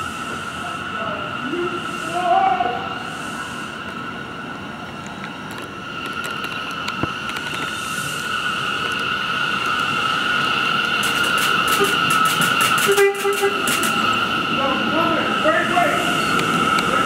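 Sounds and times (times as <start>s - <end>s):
high-pitched whine: 0.0s - 17.0s
subway train running noise: 0.0s - 17.0s
wheels clicking over rail joints: 4.8s - 17.0s.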